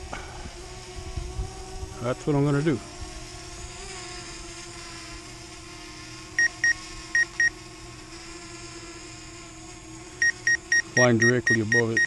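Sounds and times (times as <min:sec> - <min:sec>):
high electronic warning beeps: 0:10.2 - 0:12.0.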